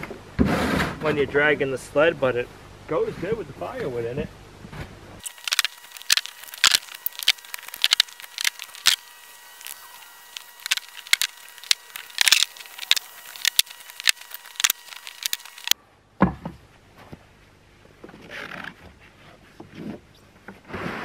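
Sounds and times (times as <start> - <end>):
firewood logs clacking: 5.2 - 16.4.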